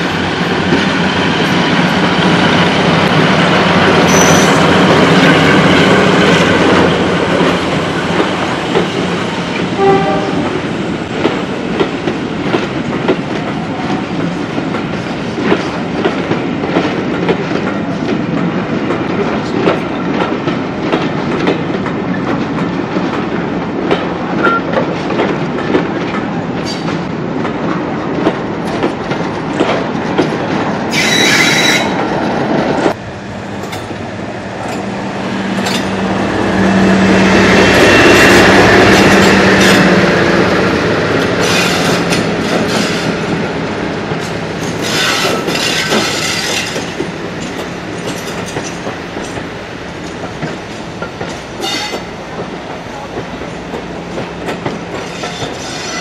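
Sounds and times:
train wheels clickety-clack: 0.0s - 33.0s, 34.6s - 56.0s
diesel locomotive engine drone: 0.0s - 56.0s
high wheel squeal: 4.0s - 4.7s, 30.9s - 32.0s.

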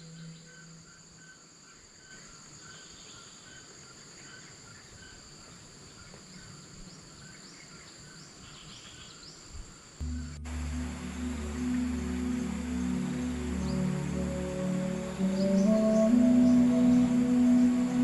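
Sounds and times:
insect pulsing chirp: 0.0s - 18.0s
insects droning: 0.0s - 18.0s
high rising chirps: 10.0s - 18.0s.

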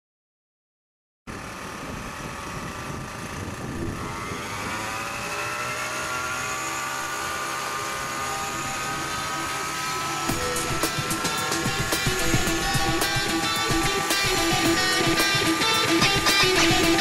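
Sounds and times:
helicopter rotor and engine: 1.3s - 17.0s
rising turbine whine: 1.3s - 17.0s.

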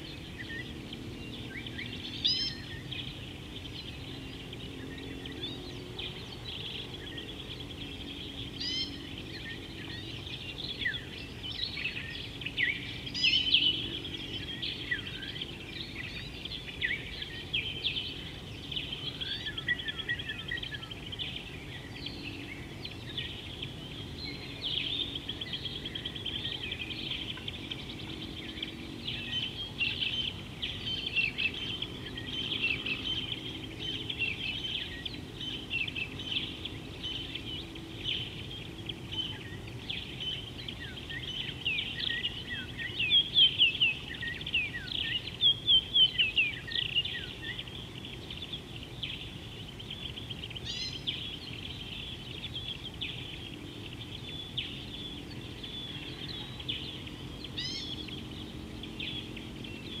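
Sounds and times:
birds chirping and singing: 0.0s - 60.0s
faint low background noise: 0.0s - 60.0s.

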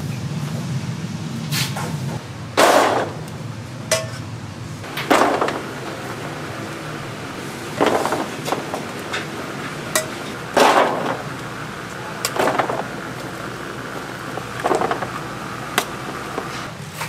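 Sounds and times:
steady low hum: 2.1s - 16.7s
metal scraping and clattering on steel: 2.6s - 3.3s, 3.9s - 16.7s
metal clink: 3.9s - 4.2s.

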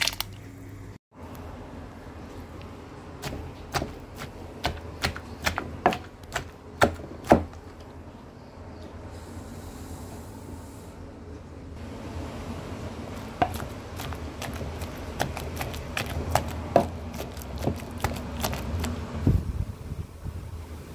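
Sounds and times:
wooden spoon knocking pot: 13.3s - 18.6s.

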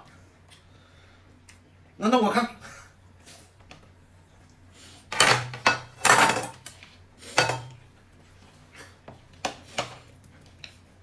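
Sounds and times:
dishes and cutlery clattering: 5.1s - 6.7s, 7.3s - 7.8s.

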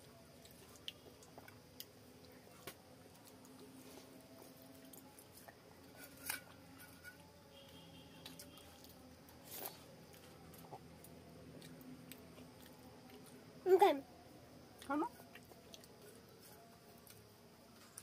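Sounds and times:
people eating by hand: 0.0s - 18.0s
chewing and wet smacks: 0.3s - 3.8s, 8.2s - 13.4s, 14.7s - 18.0s.

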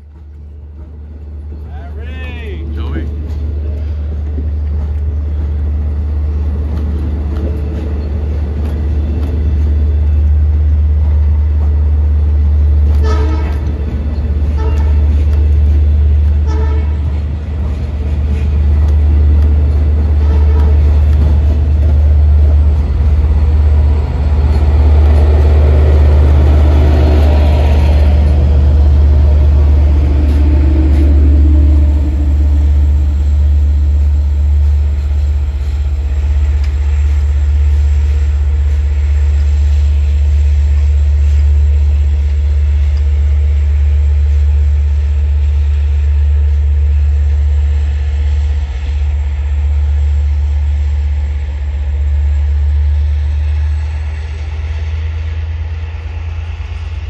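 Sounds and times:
diesel train rumbling: 0.0s - 57.0s
train horn blast: 12.8s - 13.8s, 14.4s - 15.3s, 16.4s - 17.2s, 20.0s - 21.3s.

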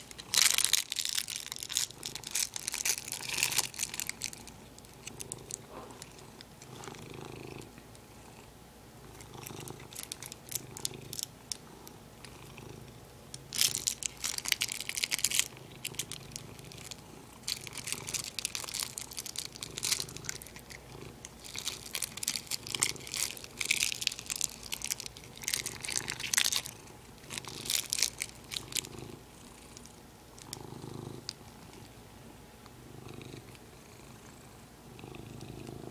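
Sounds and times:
crinkly plastic crackling: 0.0s - 7.1s, 9.1s - 11.7s, 13.3s - 32.0s
cat purring: 1.4s - 35.9s.

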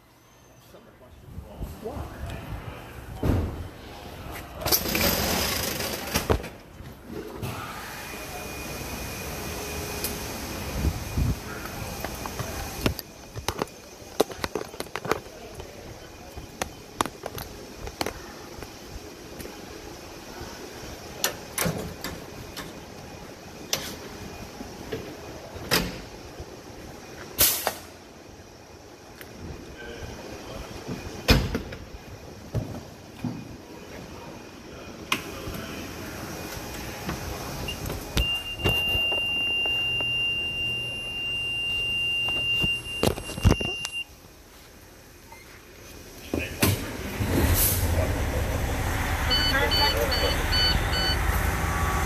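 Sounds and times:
vehicle rumble: 45.7s - 52.0s
high-pitched electronic alarm tone: 49.2s - 51.3s.

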